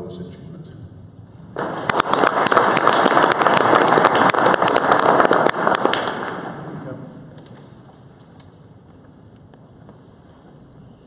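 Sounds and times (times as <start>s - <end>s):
audience applause: 1.6s - 6.8s.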